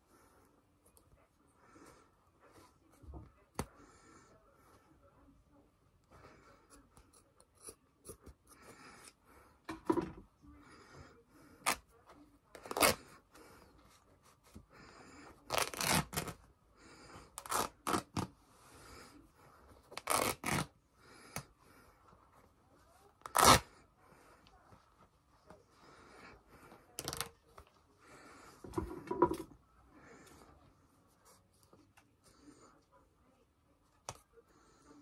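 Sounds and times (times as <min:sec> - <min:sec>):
scissors snipping fabric: 0:06.7 - 0:09.2, 0:23.2 - 0:23.6
fabric ripping: 0:12.6 - 0:13.1, 0:15.5 - 0:16.4, 0:17.4 - 0:18.3, 0:19.9 - 0:20.7, 0:23.2 - 0:23.7.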